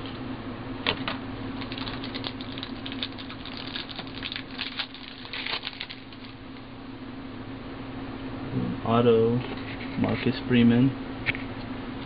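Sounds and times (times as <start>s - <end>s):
cards crackling and clicking: 1.6s - 6.4s.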